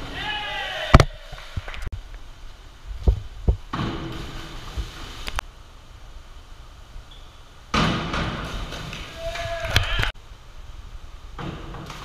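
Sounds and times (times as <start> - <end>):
diving springboard thudding: 3.3 - 5.2, 7.7 - 9.6.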